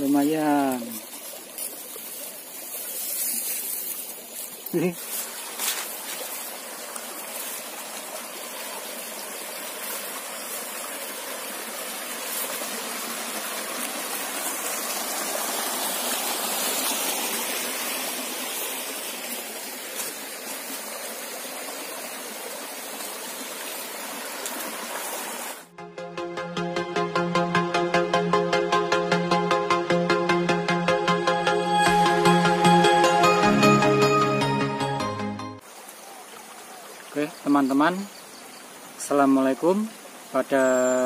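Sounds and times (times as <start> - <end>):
stream running over rocks: 0.0 - 25.7, 35.6 - 41.0.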